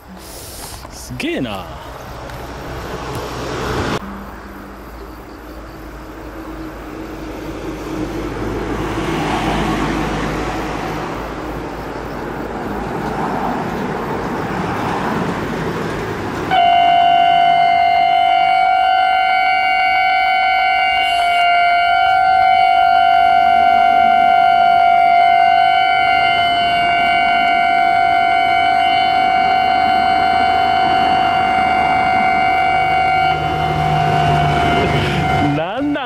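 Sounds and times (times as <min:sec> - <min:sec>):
road traffic passing: 0:00.0 - 0:36.0
level crossing alarm ringing: 0:16.5 - 0:36.0.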